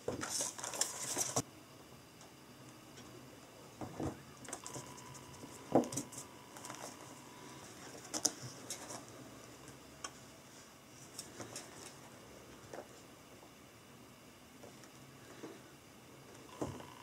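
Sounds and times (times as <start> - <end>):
pages and plastic sheet rustling: 0.1 - 1.4, 4.6 - 7.1.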